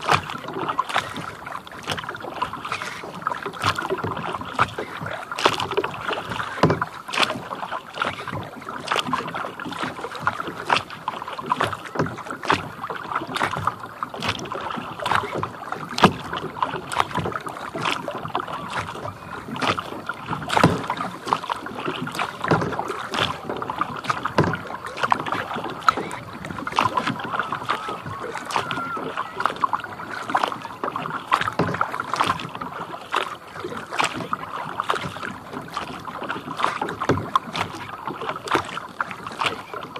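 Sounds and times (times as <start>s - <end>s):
paddle splashing water: 0.0s - 39.9s
water lapping against hull: 0.0s - 39.9s.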